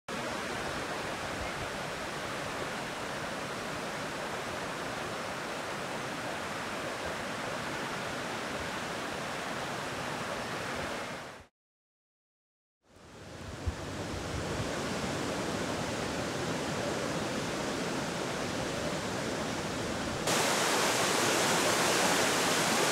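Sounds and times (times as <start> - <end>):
water rushing: 13.2 - 22.9.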